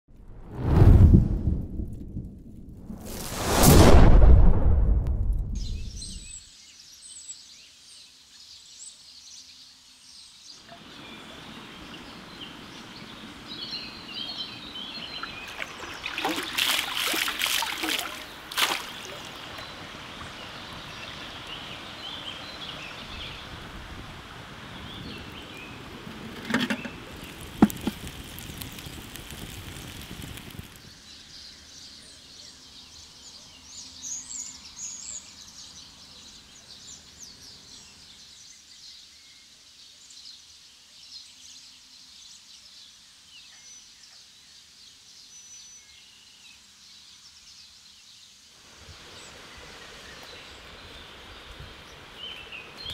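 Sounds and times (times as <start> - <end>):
running water: 15.0 - 30.8.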